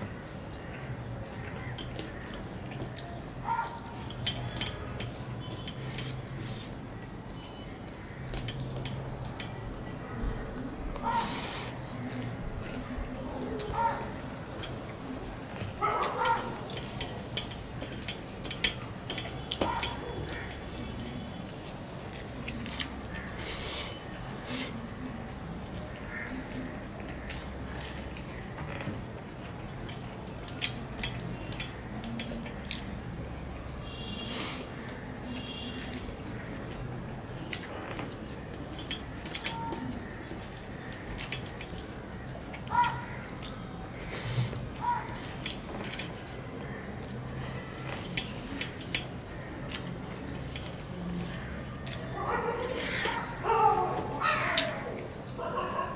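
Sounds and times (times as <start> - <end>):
wet chewing and lip-smacking: 1.5 - 7.1, 8.3 - 53.4
fingers mixing rice on steel plate: 35.8 - 52.1.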